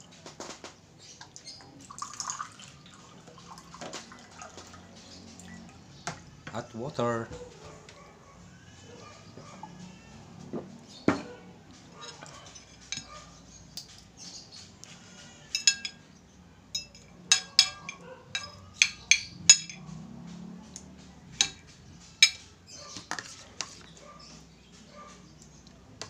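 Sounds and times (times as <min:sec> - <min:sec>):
cutlery scraping: 0:11.0 - 0:16.1, 0:16.7 - 0:24.0
cutlery clinking on glass plate: 0:15.4 - 0:16.0, 0:16.7 - 0:19.9, 0:22.2 - 0:22.4.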